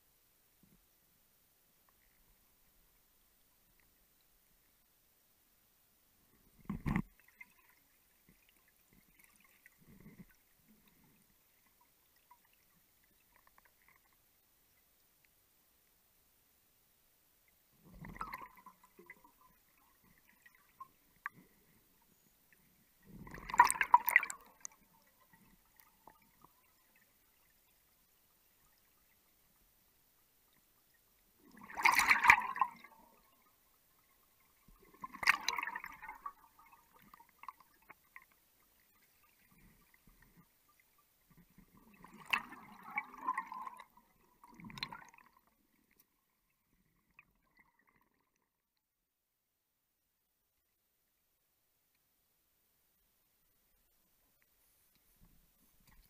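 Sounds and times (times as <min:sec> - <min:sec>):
underwater bubbling: 0:17.6 - 0:48.4.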